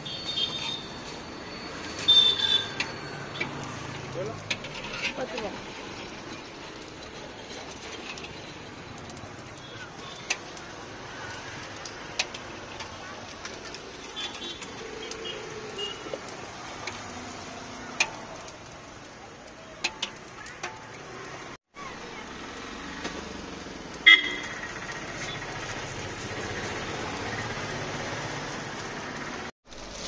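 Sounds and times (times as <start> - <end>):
motorbikes and vehicles passing: 0.0 - 30.0
vehicle horn toot: 2.0 - 2.8, 24.0 - 24.6.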